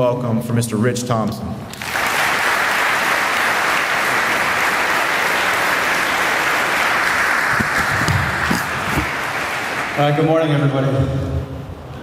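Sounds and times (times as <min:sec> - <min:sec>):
audience applauding: 0:01.7 - 0:10.8.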